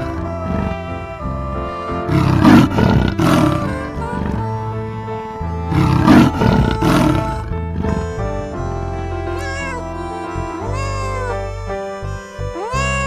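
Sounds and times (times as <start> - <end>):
instrumental background music: 0.0 - 13.0
loud animal roars: 2.1 - 4.4, 5.7 - 8.0.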